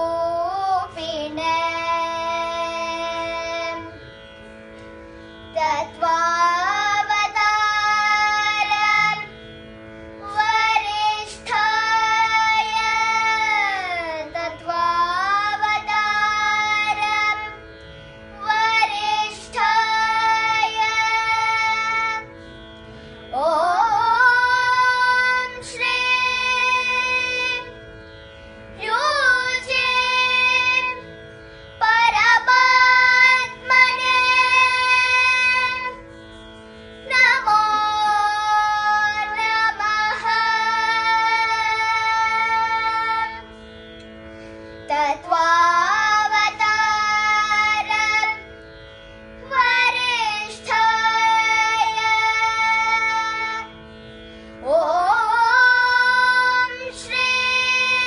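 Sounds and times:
girls singing: 0:00.0 - 0:04.0, 0:05.5 - 0:09.3, 0:10.2 - 0:17.6, 0:18.4 - 0:22.3, 0:23.3 - 0:27.7, 0:28.8 - 0:31.1, 0:31.8 - 0:36.0, 0:37.0 - 0:43.4, 0:44.9 - 0:48.4, 0:49.4 - 0:53.7, 0:54.6 - 0:58.0
steady drone: 0:00.0 - 0:58.0.

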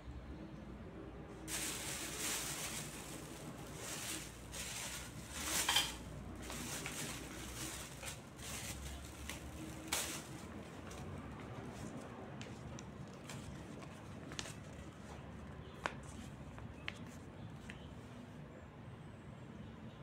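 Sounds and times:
plastic and paper packaging rustling: 0:01.4 - 0:15.4.

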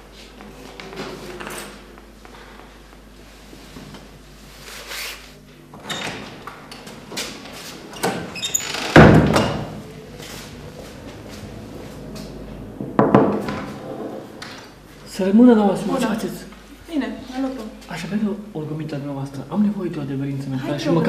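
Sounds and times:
heavy thump: 0:09.0 - 0:14.4
knocks and clatters: 0:10.7 - 0:14.7.

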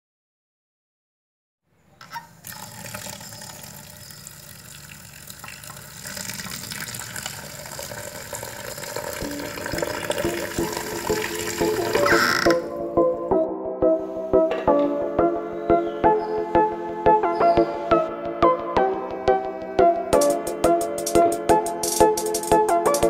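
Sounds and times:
water pouring into clay pot: 0:02.0 - 0:12.7
soft background music: 0:09.0 - 0:23.0.

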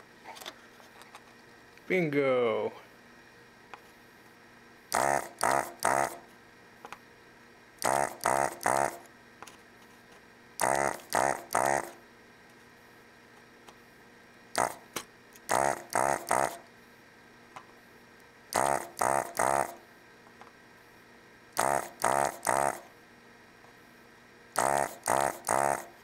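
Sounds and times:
vacuum pump buzzing: 0:04.9 - 0:06.3, 0:07.8 - 0:09.2, 0:10.6 - 0:12.1, 0:14.5 - 0:16.7, 0:18.5 - 0:19.9, 0:21.5 - 0:23.0, 0:24.5 - 0:26.0.

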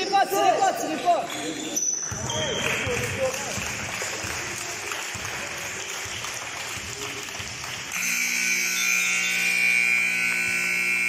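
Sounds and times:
scoreboard buzzer blaring: 0:07.9 - 0:11.0.

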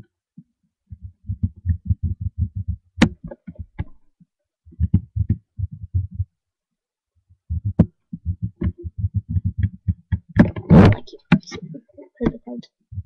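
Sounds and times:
marker scribbling thumps: 0:00.9 - 0:03.9, 0:04.7 - 0:06.3, 0:07.5 - 0:11.6.

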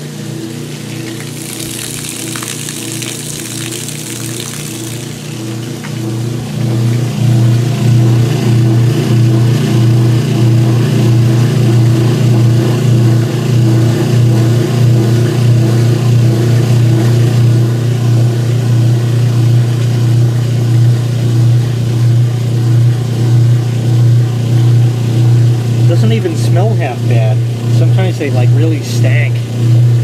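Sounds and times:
washer drain pump humming: 0:00.0 - 0:11.9.

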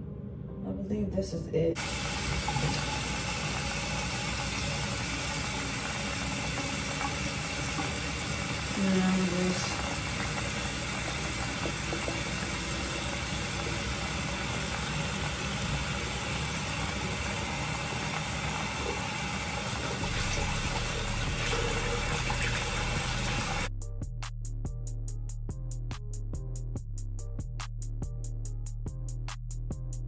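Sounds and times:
tap water running: 0:01.8 - 0:23.7.

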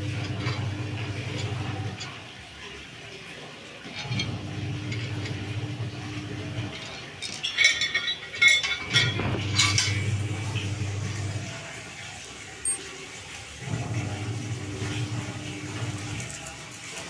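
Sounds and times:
metal parts clinking and rattling: 0:00.0 - 0:02.3, 0:03.8 - 0:11.4, 0:12.6 - 0:13.0, 0:15.8 - 0:17.0
low steady hum: 0:07.6 - 0:11.6.

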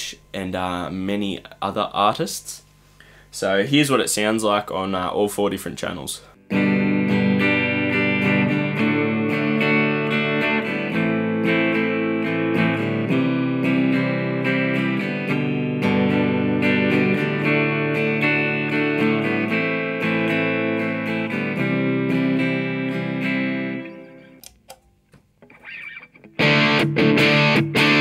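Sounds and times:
clean electric guitar strumming chords: 0:06.4 - 0:24.6, 0:25.4 - 0:28.0.

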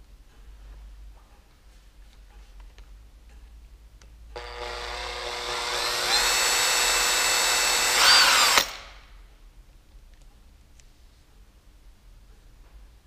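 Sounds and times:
cordless drill whining: 0:04.4 - 0:08.9.

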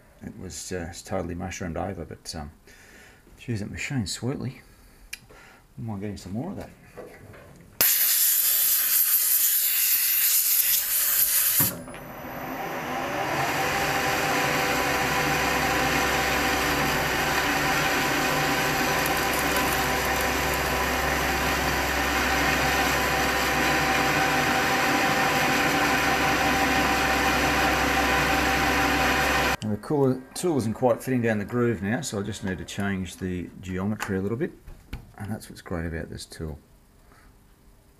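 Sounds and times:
air blow gun hissing: 0:07.8 - 0:11.8
metal lathe whining: 0:11.5 - 0:29.6.

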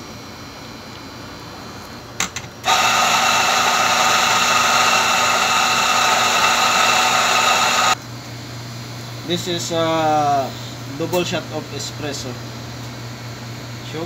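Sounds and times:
coffee grinder motor whine: 0:02.6 - 0:08.0.

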